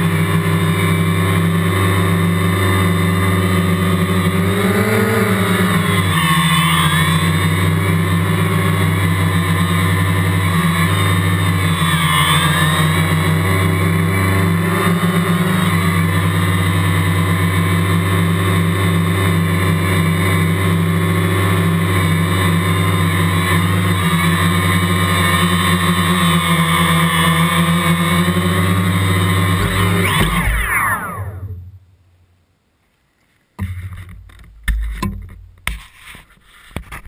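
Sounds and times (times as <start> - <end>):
quadcopter buzzing drone: 0.0 - 31.8.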